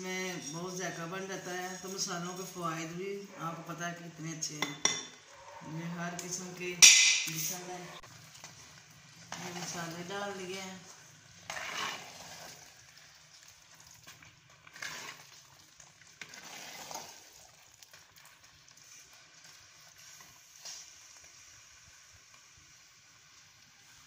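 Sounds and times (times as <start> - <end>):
curry sizzling faintly in pot: 0.0 - 24.0
metal spoon stirring in pot: 6.1 - 21.0.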